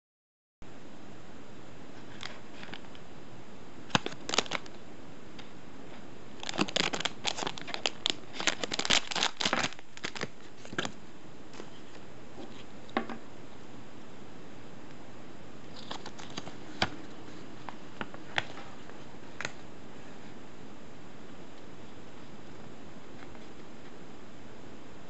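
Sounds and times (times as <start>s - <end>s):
plastic packet crinkling: 3.9s - 4.8s, 6.4s - 10.9s, 15.7s - 16.8s.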